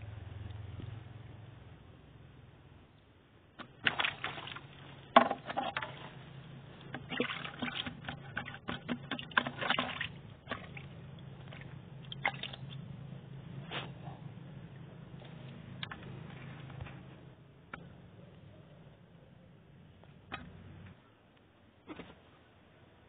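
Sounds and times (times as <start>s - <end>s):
fish splashing in bucket: 3.6s - 6.2s, 6.9s - 12.8s.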